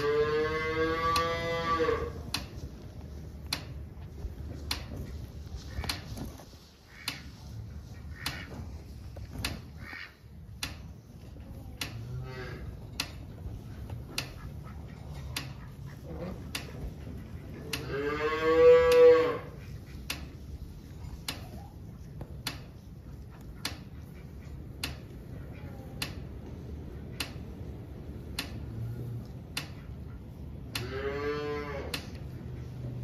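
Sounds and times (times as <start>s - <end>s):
cattle mooing: 0.0s - 2.2s, 17.7s - 19.6s, 30.8s - 32.1s
faint clicks: 21.2s - 30.0s.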